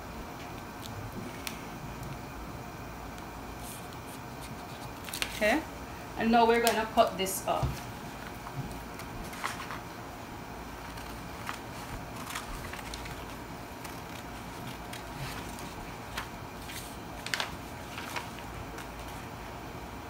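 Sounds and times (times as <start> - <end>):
low room hum: 0.0 - 20.0
paper rustling and crinkling: 3.6 - 5.6, 7.7 - 10.0, 10.8 - 19.4
sharp paper crackles: 3.6 - 5.6, 8.1 - 9.9, 10.8 - 19.4.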